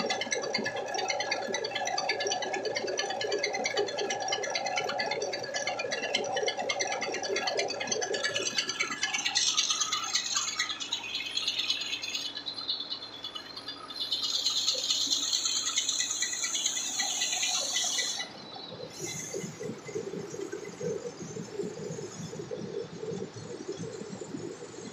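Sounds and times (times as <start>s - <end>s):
rice mill running: 13.4s - 20.5s.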